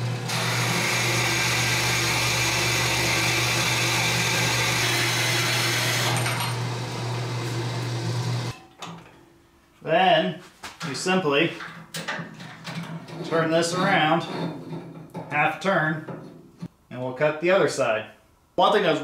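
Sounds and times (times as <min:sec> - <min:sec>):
bandsaw motor hum: 0:00.0 - 0:08.6.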